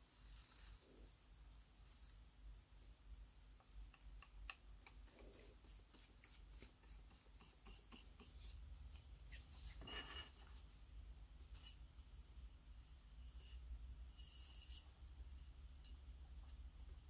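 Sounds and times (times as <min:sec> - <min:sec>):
wooden stick scraping metal plate: 0:09.7 - 0:10.6, 0:13.2 - 0:14.9.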